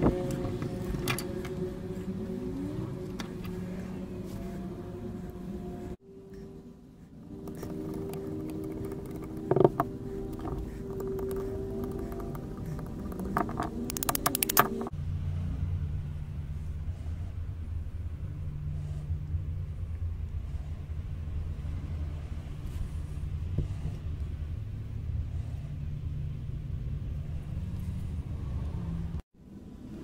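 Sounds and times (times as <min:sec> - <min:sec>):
low rumble with hum: 0:00.0 - 0:30.0
fast sharp clicks: 0:07.4 - 0:14.9.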